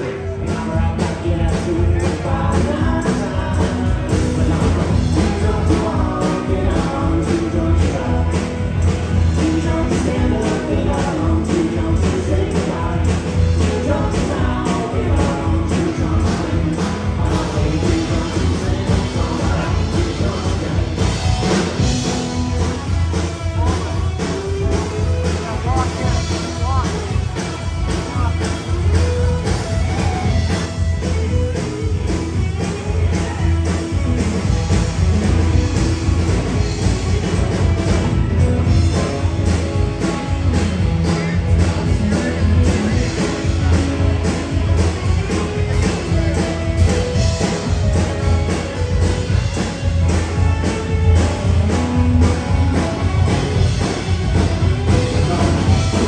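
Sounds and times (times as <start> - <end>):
crowd chatter: 0.0 - 56.0
live rock band: 0.0 - 56.0
person singing: 0.0 - 56.0.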